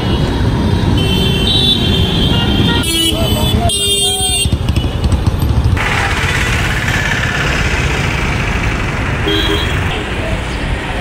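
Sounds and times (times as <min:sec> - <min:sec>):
vehicle engines idling: 0:04.3 - 0:11.0.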